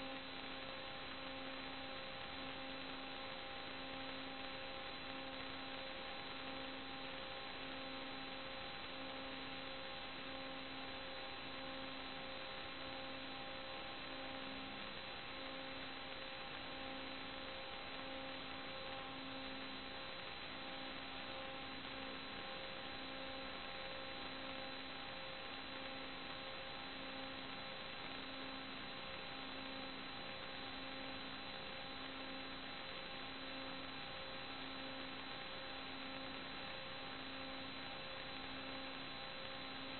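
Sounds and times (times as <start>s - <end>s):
electrical hum and hiss: 0.0s - 39.9s.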